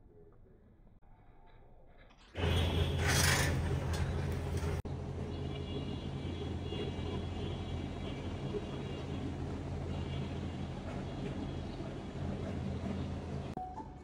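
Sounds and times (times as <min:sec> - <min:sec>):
low mechanical hum: 0:01.3 - 0:13.6.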